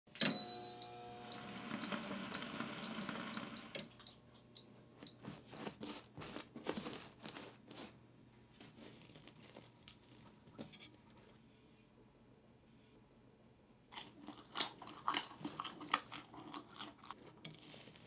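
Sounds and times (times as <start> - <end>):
oven bell ding: 0.2 - 3.0
oven ticking: 0.2 - 5.2
pastry brush strokes: 5.0 - 8.0.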